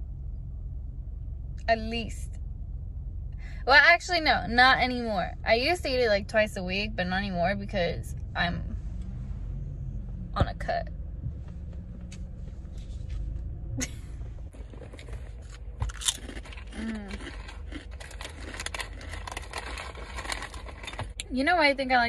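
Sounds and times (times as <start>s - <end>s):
low rumble inside car: 0.0s - 22.0s
chewing crunchy snack: 14.7s - 21.2s.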